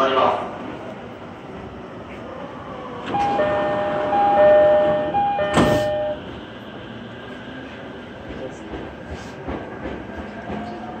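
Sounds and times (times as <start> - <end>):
stopped train carriage hum: 0.0 - 11.0
train doors shutting: 2.0 - 11.0
two-note door-closing chime: 3.2 - 6.2.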